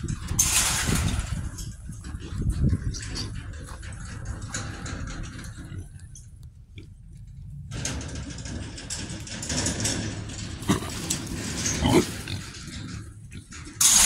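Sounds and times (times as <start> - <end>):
hogs grunting: 10.6 - 12.6.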